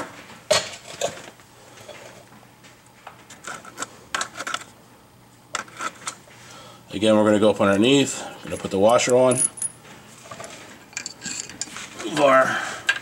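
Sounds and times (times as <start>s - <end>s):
metal hardware clinking: 8.5s - 9.8s.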